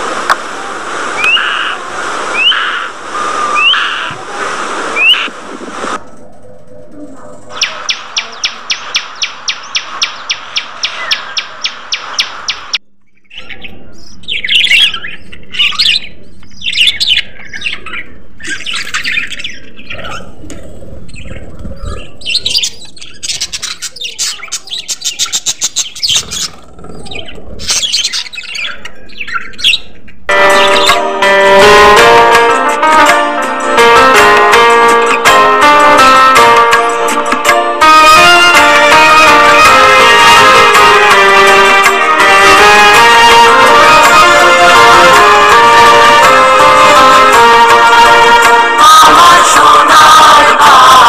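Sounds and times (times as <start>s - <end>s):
budgerigars chirping: 7.5s - 20.2s, 21.1s - 31.0s.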